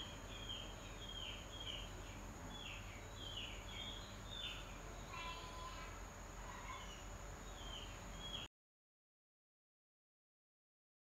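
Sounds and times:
small bird chirping: 0.0s - 8.5s.

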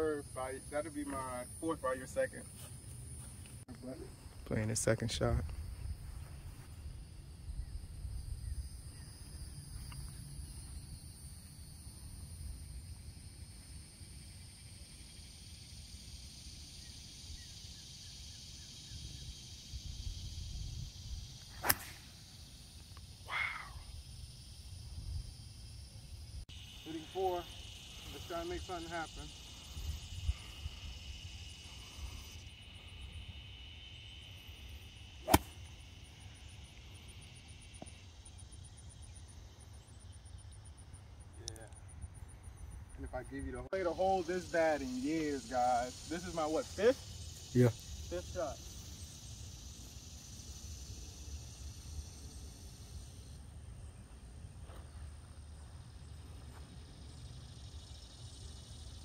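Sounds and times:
insects buzzing: 0.0s - 59.0s
wind rumbling on microphone: 19.7s - 21.4s
golf club striking ball: 21.6s - 22.0s, 35.2s - 35.6s.

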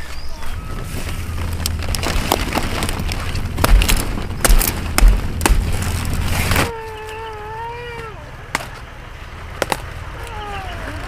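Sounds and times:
cauliflower stalks snapping: 1.3s - 6.7s.

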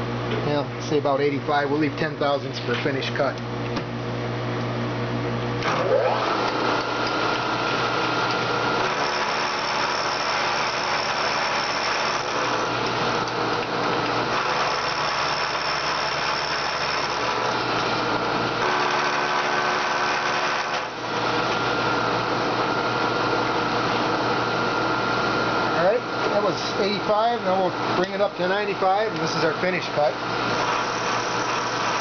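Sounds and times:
milling machine cutting metal: 5.6s - 22.8s, 28.0s - 32.0s.

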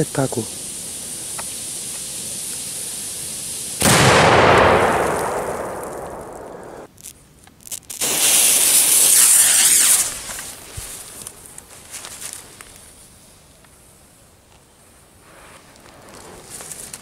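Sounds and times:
firework fountain hissing: 0.0s - 6.9s, 7.9s - 15.4s
loud high hiss: 0.0s - 6.9s, 7.9s - 14.4s
loud firework bang: 3.8s - 6.9s.

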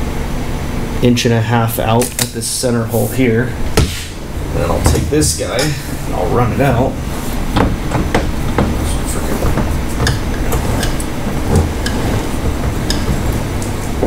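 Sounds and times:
low rumble: 3.4s - 14.0s
steering helm clicking and rattling: 7.6s - 14.0s.

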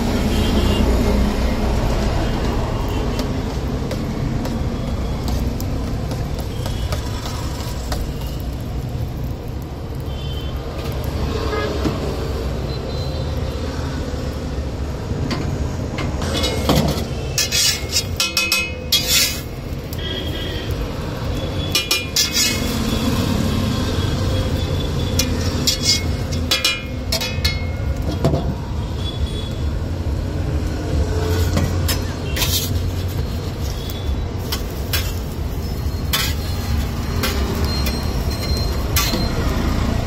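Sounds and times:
metal spatula scraping on griddle: 3.9s - 8.6s, 16.1s - 28.3s, 31.1s - 40.0s.

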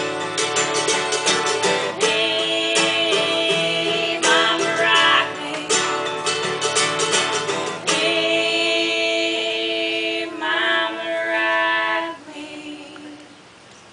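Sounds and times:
mandolin and guitar strumming: 0.0s - 11.0s
two voices singing: 1.2s - 6.4s, 7.7s - 13.5s.

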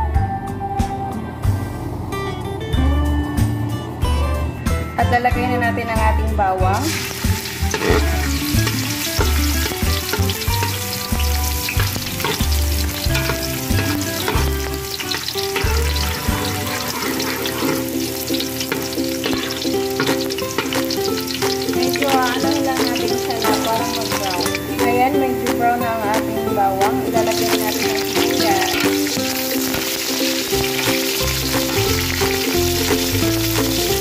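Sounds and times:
garlic sizzling in oil: 6.7s - 34.0s
spatula scraping metal pan: 7.5s - 22.5s.

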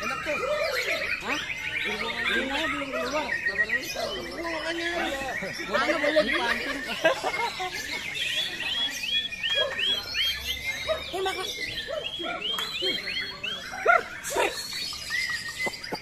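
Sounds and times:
caged songbirds calling: 0.0s - 16.0s
bird singing whistled notes: 7.8s - 16.0s.

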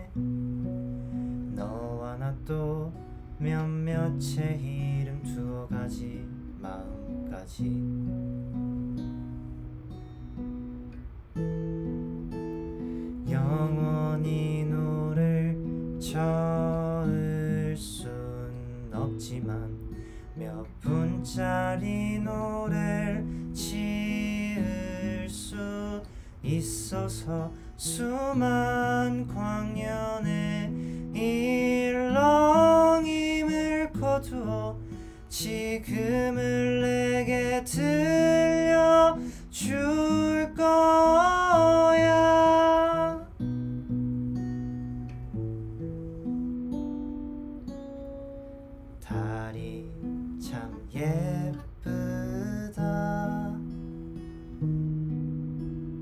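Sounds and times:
man singing: 0.0s - 8.3s, 13.2s - 43.4s, 49.0s - 53.8s
acoustic guitar chords: 0.0s - 56.0s.

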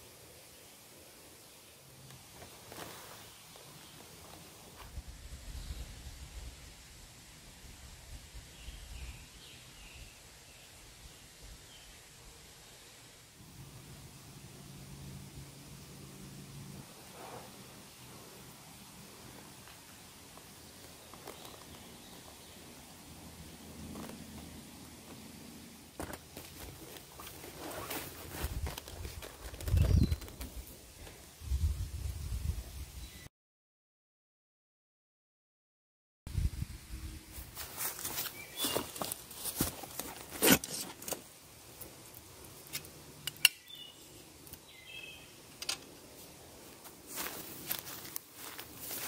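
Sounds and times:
rustle of strapping: 2.1s - 5.0s, 19.6s - 22.2s, 26.0s - 31.1s, 37.3s - 43.0s
rucksack rustling and clicks: 26.0s - 30.6s
bird chirps: 38.3s - 38.9s, 43.4s - 45.4s.

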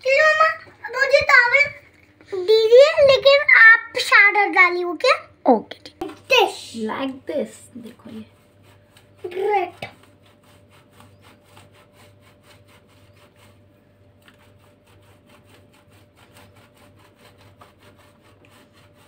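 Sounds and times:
cheese grating on metal grater: 7.6s - 19.0s.

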